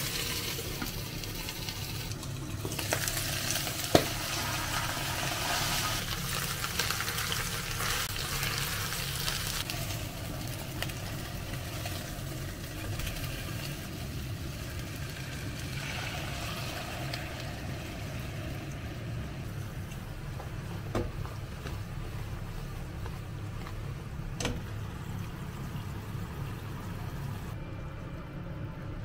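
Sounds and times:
chicken sizzling in a pan: 0:00.0 - 0:19.4
steady low hum: 0:09.6 - 0:29.0.

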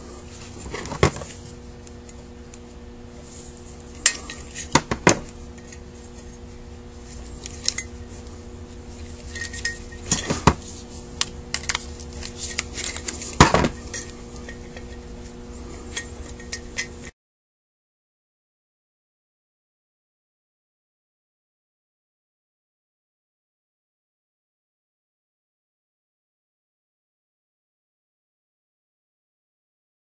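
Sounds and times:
metal parts clinking on bench: 0:09.1 - 0:10.5, 0:11.5 - 0:15.0, 0:15.9 - 0:17.1.

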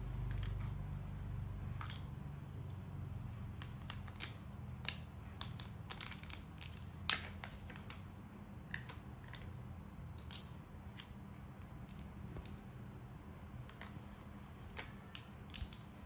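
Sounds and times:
steady low hum: 0:00.0 - 0:16.0
plastic bricks clicking together: 0:03.6 - 0:08.0, 0:10.2 - 0:11.1.

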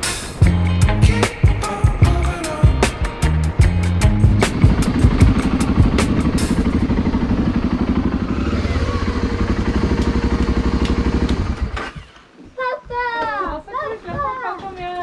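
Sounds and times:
motorcycle engine idling: 0:00.9 - 0:12.3.

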